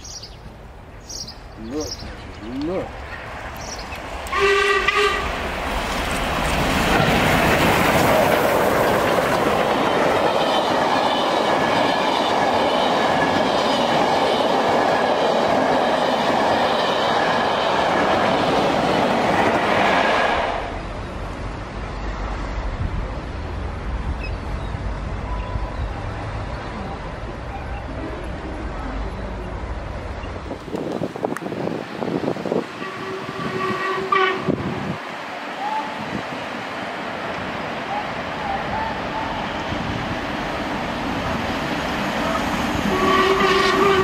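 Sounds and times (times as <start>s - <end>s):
steam locomotive whistle: 4.3s - 5.4s, 32.8s - 34.6s, 42.8s - 44.0s
train wheels clattering on rail: 5.2s - 20.3s.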